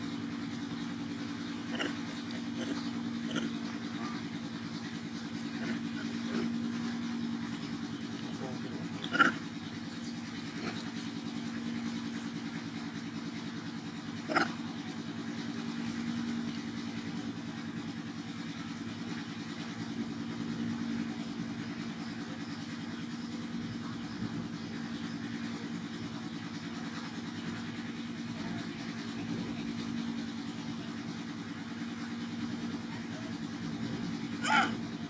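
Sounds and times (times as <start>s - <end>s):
engine idling: 0.0s - 35.0s.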